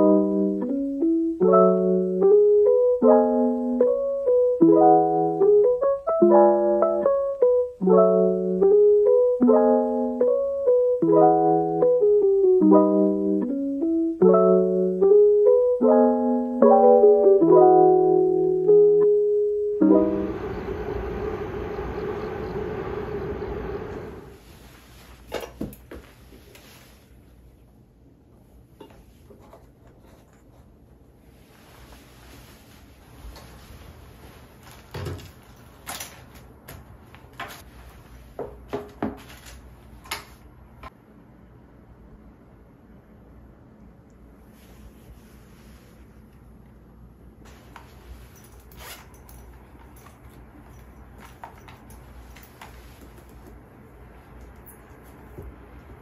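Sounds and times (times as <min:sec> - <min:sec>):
room hum: 0:00.0 - 0:56.0.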